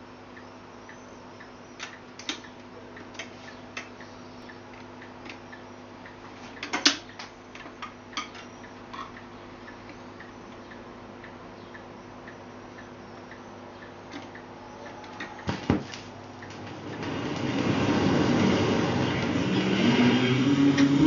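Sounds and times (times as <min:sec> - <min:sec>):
record changer motor hum: 0:00.0 - 0:21.0.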